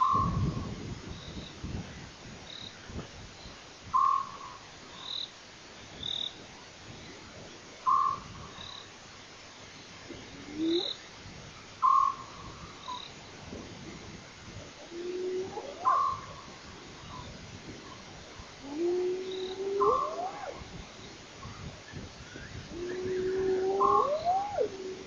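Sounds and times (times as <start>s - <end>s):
frog calling: 7.9s - 8.8s, 10.4s - 11.0s, 11.8s - 13.1s, 14.9s - 16.4s, 18.6s - 20.7s, 22.7s - 25.0s.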